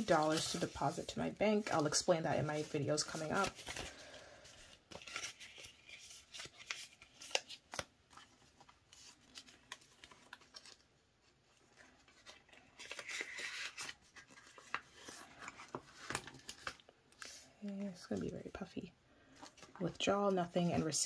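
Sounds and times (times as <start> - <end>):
plastic and banknotes rustling: 0.0 - 21.0.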